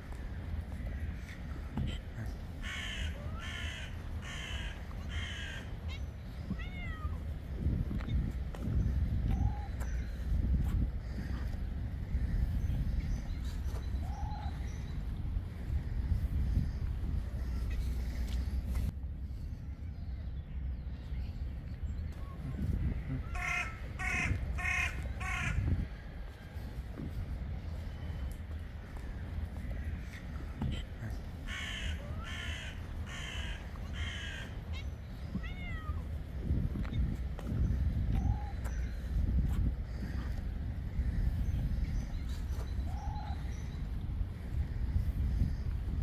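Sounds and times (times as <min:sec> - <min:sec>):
steady low rumble: 0:00.0 - 0:46.0
crow cawing: 0:02.6 - 0:06.0, 0:23.3 - 0:25.7, 0:31.5 - 0:34.9
cat meowing: 0:06.5 - 0:07.2, 0:35.3 - 0:36.1.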